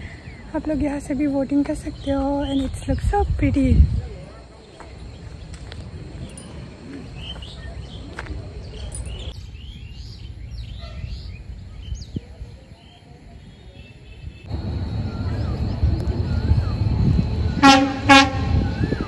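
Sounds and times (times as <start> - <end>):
small birds chirping: 4.3 - 17.6
steady low rumble: 14.4 - 19.0.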